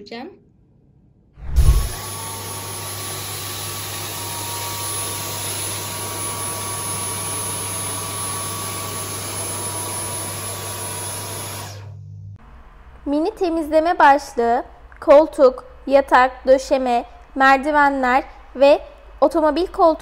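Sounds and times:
vacuum cleaner running: 0:01.6 - 0:14.2.

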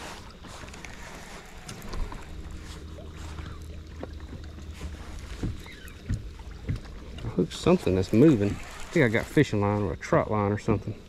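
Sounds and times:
boat engine low rumble: 0:00.0 - 0:11.0
light knocks and clicks: 0:03.4 - 0:07.4.

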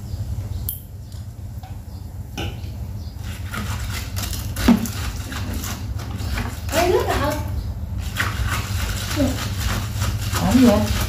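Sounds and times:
electric fan air rumble: 0:00.0 - 0:11.0.

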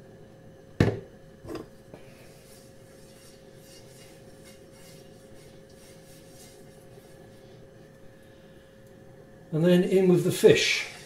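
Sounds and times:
faint steady hum: 0:00.0 - 0:11.0
frying pan scraping on hob: 0:01.4 - 0:07.2.

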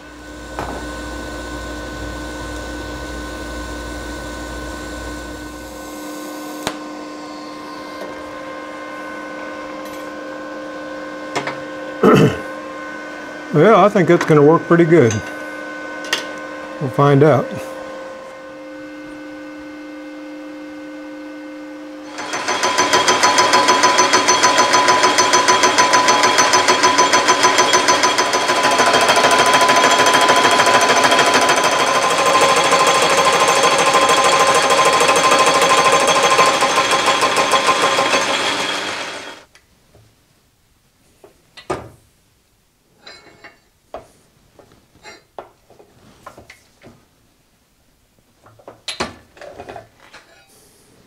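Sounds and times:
metal lathe running hum: 0:00.0 - 0:06.4, 0:22.0 - 0:39.5
tool bit scraping metal: 0:22.1 - 0:39.4.

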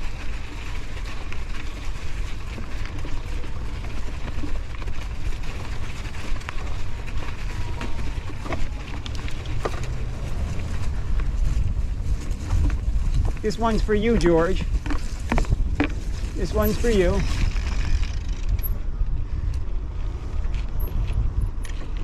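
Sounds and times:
bike clicks and rattles: 0:00.0 - 0:22.0
bike tyres on dirt trail: 0:00.0 - 0:22.0
wind buffeting microphone: 0:00.0 - 0:22.0.

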